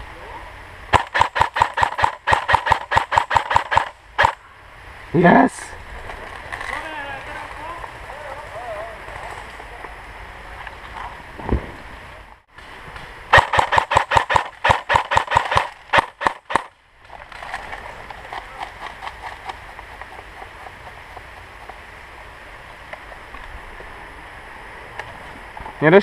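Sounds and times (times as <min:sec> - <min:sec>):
airsoft rifle rapid firing: 0:00.9 - 0:04.4, 0:13.3 - 0:16.7.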